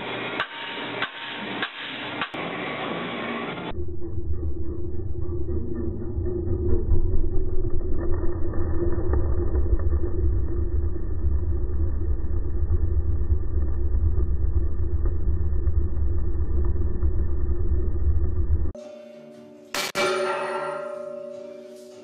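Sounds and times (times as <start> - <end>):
outboard motor underwater rumble: 3.8 - 18.8.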